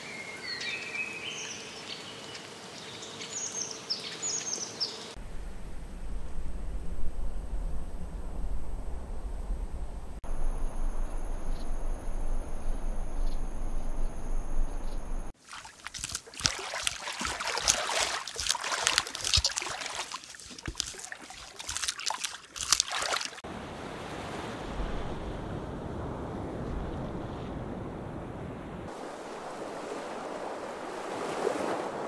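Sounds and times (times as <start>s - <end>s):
surf on rocks: 5.2s - 32.0s
beaver chewing stick wet crackling: 11.4s - 23.4s.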